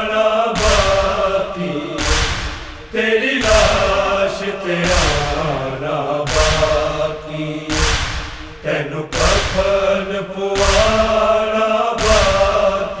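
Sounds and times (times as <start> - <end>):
men chanting long held notes: 0.0 - 13.0
group chest-beats: 0.6 - 5.4, 6.3 - 7.1, 7.7 - 10.0, 10.6 - 11.2, 12.0 - 13.0.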